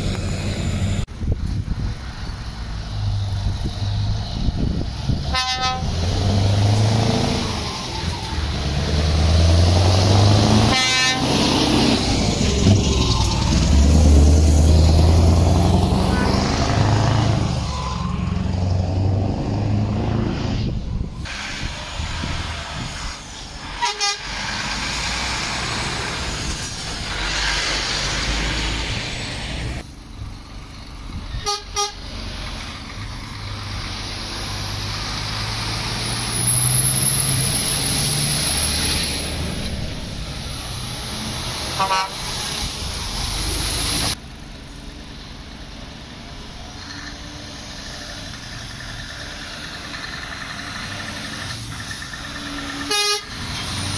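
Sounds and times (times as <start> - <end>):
diesel lorries driving past: 0.0 - 53.9
truck horn toots: 5.3 - 6.0, 10.6 - 11.6, 23.8 - 24.3, 31.4 - 32.0, 41.8 - 42.3, 52.8 - 53.4.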